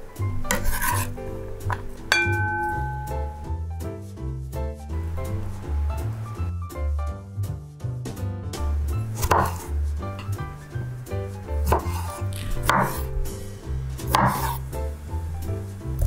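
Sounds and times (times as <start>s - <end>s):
background music: 0.0s - 16.0s
knife cutting on wooden board: 0.5s - 1.8s, 9.2s - 10.9s, 11.6s - 13.2s, 14.0s - 14.6s.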